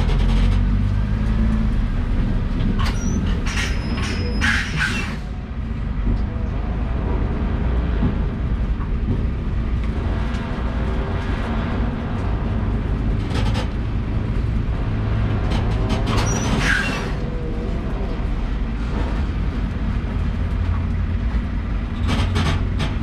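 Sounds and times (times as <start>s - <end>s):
truck engine and road rumble: 0.0s - 23.0s
short squeal: 2.8s - 5.3s, 16.2s - 17.2s.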